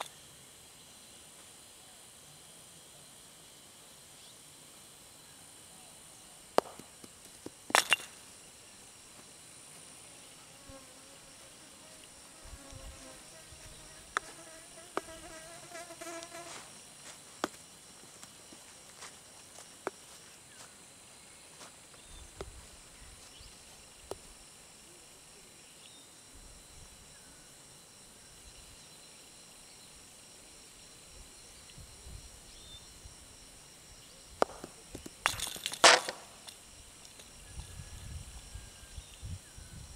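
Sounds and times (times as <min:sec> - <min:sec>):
insects buzzing: 0:00.0 - 0:39.9
wooden mallet striking ball: 0:06.6 - 0:07.1.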